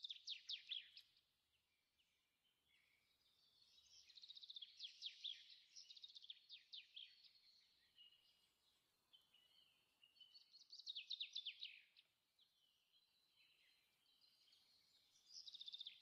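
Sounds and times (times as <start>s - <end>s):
faint birdsong trills and chirps: 0.0s - 16.0s.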